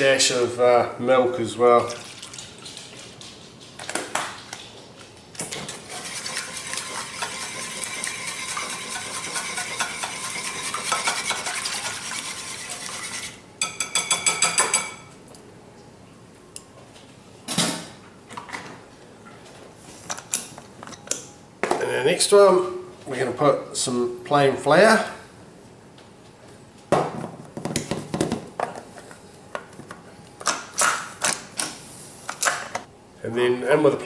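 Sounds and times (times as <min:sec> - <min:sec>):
wire whisk beating in bowl: 0:06.1 - 0:12.9.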